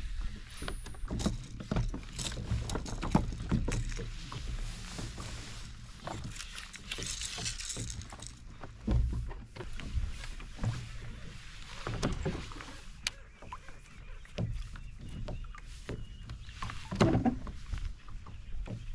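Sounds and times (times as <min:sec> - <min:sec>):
fishing gear knocking and clicking: 0:01.1 - 0:04.1, 0:06.0 - 0:09.2.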